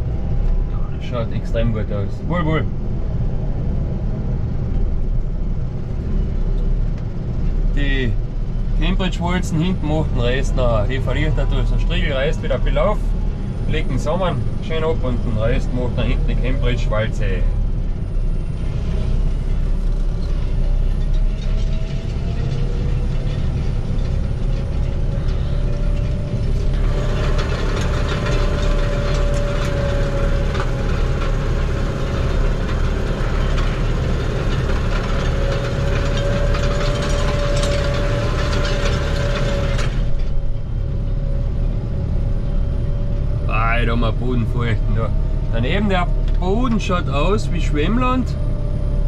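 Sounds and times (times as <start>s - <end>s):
held whine: 0.0s - 49.0s
tractor engine rumble: 0.0s - 49.0s
metallic rattling clatter: 18.9s - 40.7s.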